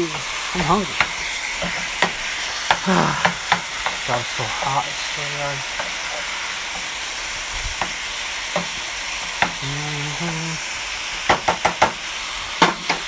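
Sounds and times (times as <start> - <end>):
beef sizzling in a frying pan: 0.0 - 13.0
wooden spoon knocking on pan: 0.1 - 4.1, 7.7 - 9.6, 11.3 - 12.0.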